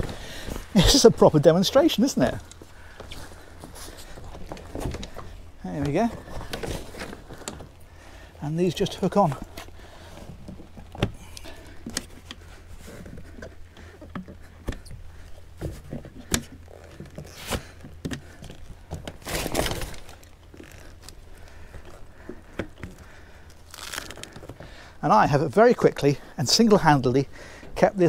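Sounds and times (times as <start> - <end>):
canvas rustling: 0.0 - 8.0, 15.0 - 24.6.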